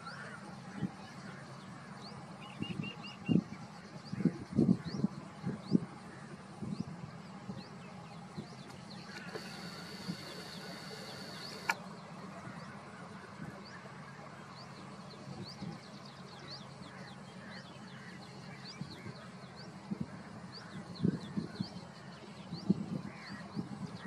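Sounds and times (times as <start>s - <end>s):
birds chirping: 0.0s - 24.0s
low background hum: 0.0s - 24.0s
sharp click: 8.7s - 11.8s
high whine: 9.1s - 11.8s.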